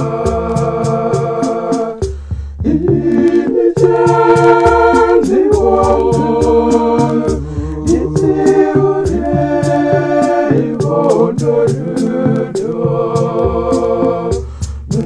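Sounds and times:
steady beat: 0.0 - 15.0
woman singing layered harmonies: 2.6 - 14.4.

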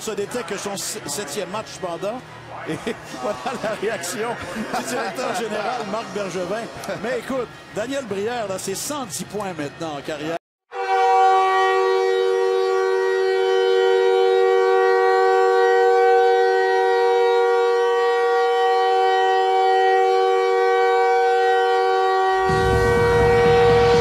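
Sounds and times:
horn-like chord: 3.6 - 8.1, 10.7 - 24.0.

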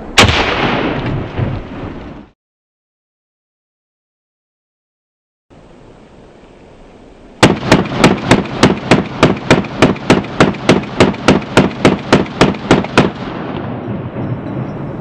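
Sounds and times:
rumbling echo of gunfire: 0.2 - 2.0, 7.4 - 14.2
rifle shots in rapid succession: 7.4 - 13.5.

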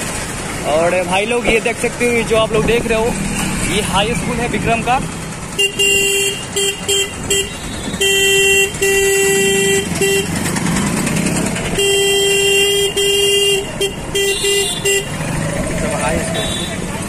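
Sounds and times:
street traffic: 0.0 - 17.0
vehicle horn honking: 5.6 - 10.4, 11.7 - 15.2, 16.3 - 16.9.

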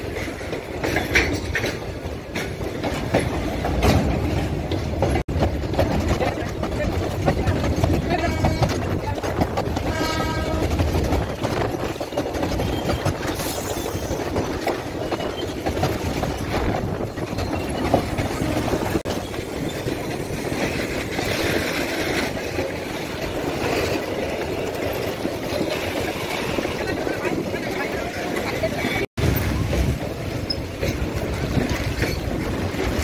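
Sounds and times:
freight train wheels rumbling on rails: 0.0 - 33.0.

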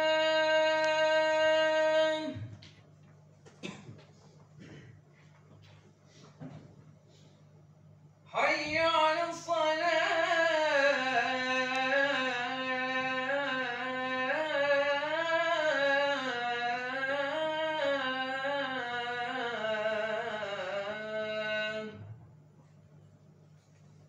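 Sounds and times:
man chanting call to prayer: 0.0 - 2.5, 8.3 - 22.1.

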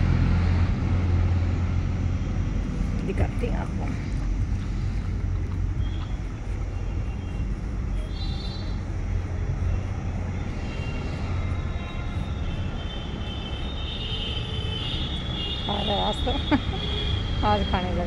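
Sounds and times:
low outdoor rumble: 0.0 - 18.0
faint high chirps: 5.8 - 8.9.

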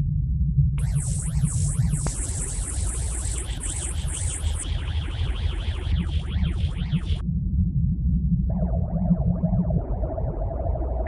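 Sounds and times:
rising and falling sweeps: 0.8 - 7.2
low electronic drone: 0.8 - 11.0.

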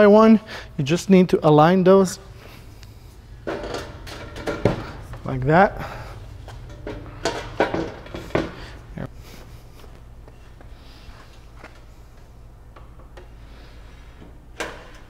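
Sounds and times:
steady low hum: 0.0 - 15.0
metal beams clacking together: 3.5 - 5.3.

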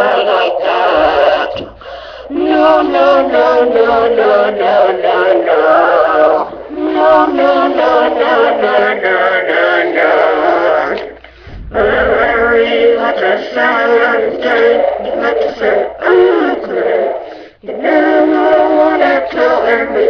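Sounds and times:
person singing: 0.0 - 20.0.

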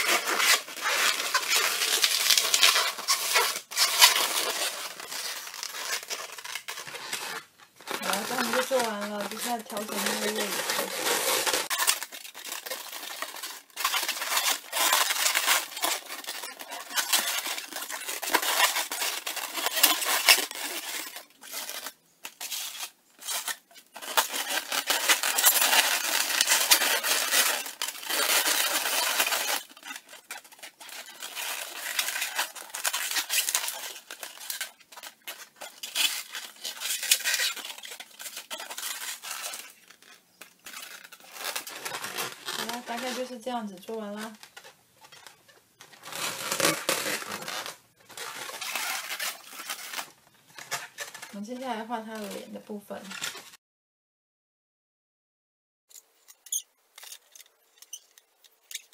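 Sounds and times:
balloons rubbing: 0.0 - 21.8, 40.8 - 43.4, 44.3 - 51.2.

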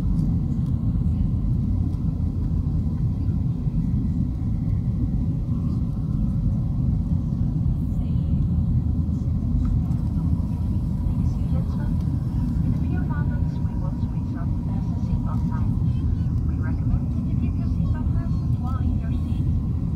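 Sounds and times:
airplane cabin engine rumble: 0.0 - 19.9.

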